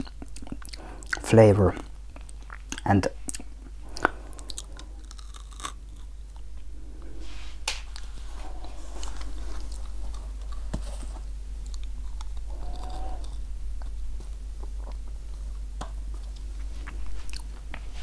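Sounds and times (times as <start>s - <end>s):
soft chewing: 0.0s - 7.2s, 7.8s - 18.0s
steady low hum: 0.0s - 18.0s
candy shells crunching: 3.4s - 6.4s.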